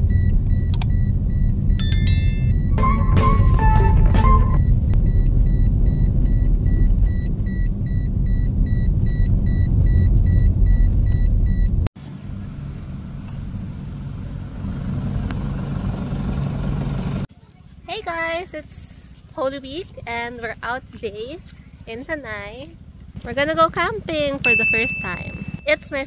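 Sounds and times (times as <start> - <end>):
car engine and tyres rumbling: 0.0 - 17.9, 18.6 - 26.0
faint high beeps: 24.5 - 26.0.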